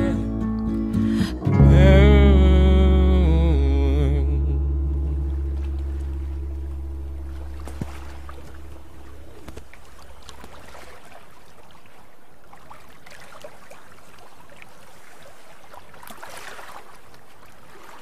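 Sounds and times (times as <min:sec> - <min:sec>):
background music chord: 0:00.0 - 0:09.4
water lapping against boat hull: 0:05.5 - 0:18.0
small splashes and clicks: 0:09.3 - 0:11.8, 0:15.7 - 0:18.0.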